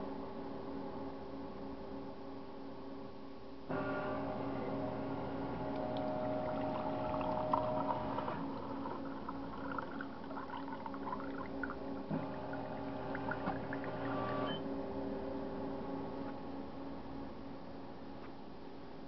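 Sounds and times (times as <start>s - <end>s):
coffee machine motor hum: 3.7s - 14.6s
water gurgling and clicking: 5.7s - 14.2s.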